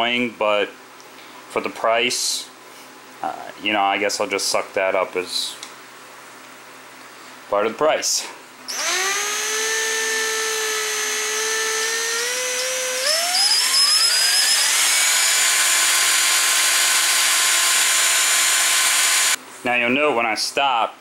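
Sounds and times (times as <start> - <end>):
electric drill whining: 8.7 - 19.4.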